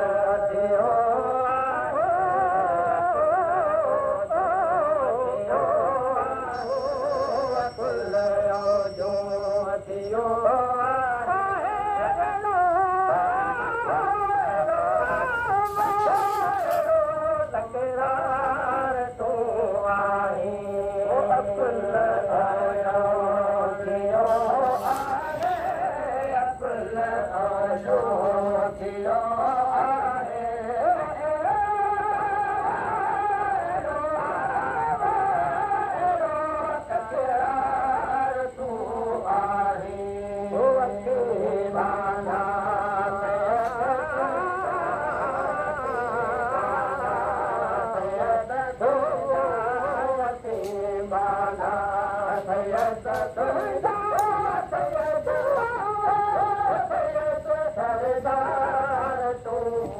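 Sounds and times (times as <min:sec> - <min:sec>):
man singing devotional song: 0:00.0 - 0:59.9.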